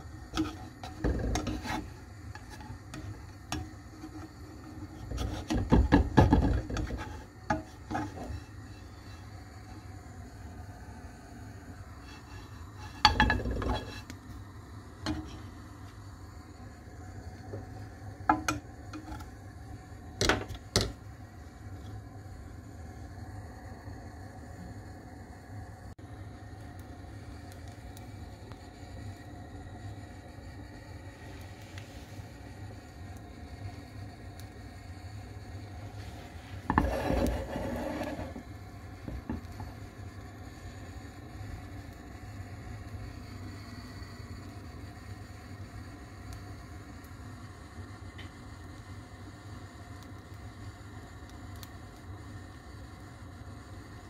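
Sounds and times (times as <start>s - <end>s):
steady low hum: 0.0s - 54.0s
frying pan clanking on metal grate: 5.3s - 7.8s, 13.0s - 13.9s.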